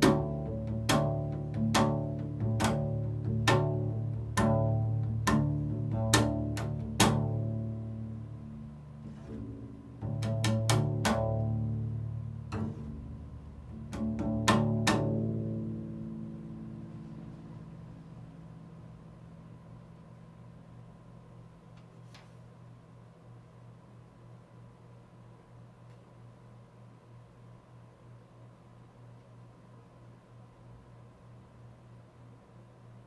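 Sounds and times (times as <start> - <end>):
double bass struck with mallet: 0.0 - 21.2.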